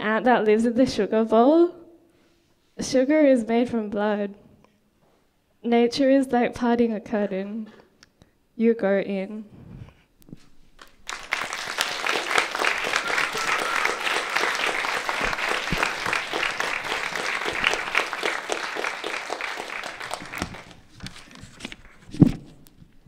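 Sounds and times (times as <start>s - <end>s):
audience applauding: 10.8s - 22.0s.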